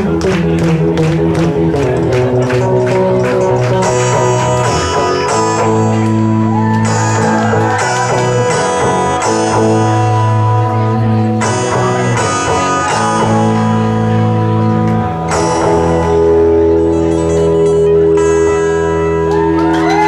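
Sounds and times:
low bass note: 0.0s - 19.1s
electric guitar with delay: 0.0s - 20.0s.

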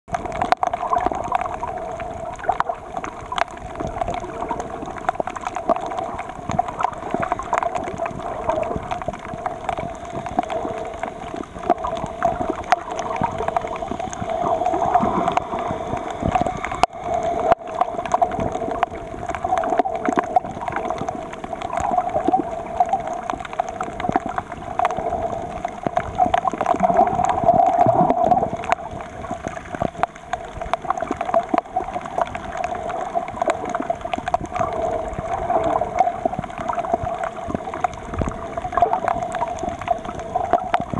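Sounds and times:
crackle of small clicks underwater: 0.1s - 40.9s
water wash noise: 0.1s - 40.9s.

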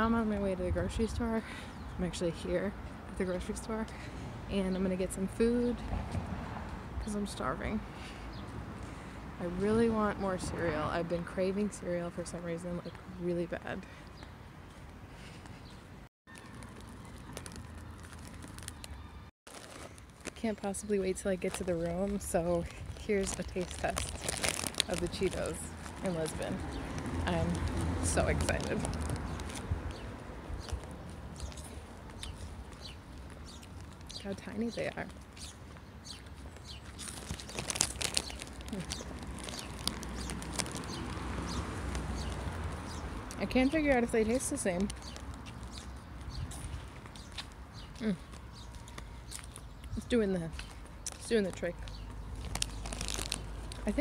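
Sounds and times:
wind rumbling on microphone: 0.0s - 3.6s, 5.2s - 11.7s, 21.4s - 48.8s
chewing crunchy snacks: 16.3s - 20.4s, 22.6s - 26.1s, 36.6s - 43.0s, 50.6s - 53.8s.

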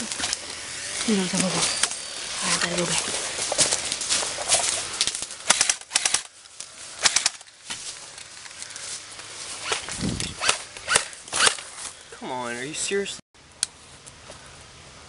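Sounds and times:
airsoft rifle shots: 5.4s - 6.3s, 7.0s - 7.4s.

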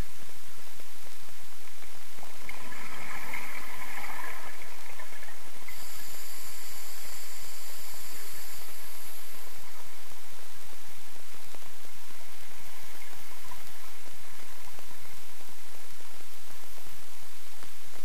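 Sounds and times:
regulator inhale hiss and whistle: 5.7s - 9.6s.

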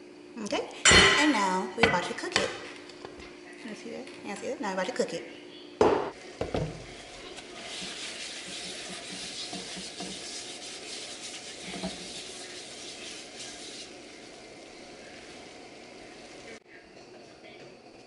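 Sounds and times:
paper towel wiping pan: 6.8s - 16.6s.

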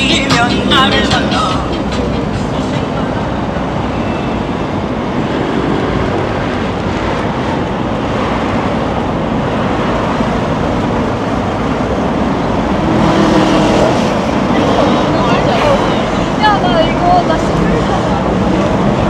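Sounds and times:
passing vehicles rumbling: 0.0s - 19.0s.

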